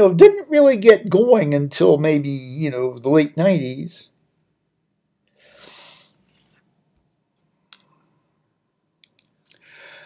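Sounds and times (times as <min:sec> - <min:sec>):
soft breath exhale: 0:09.6 - 0:10.0.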